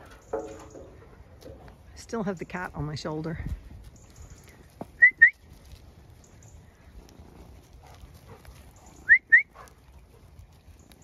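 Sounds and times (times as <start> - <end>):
short rising whistles: 9.0 - 9.6.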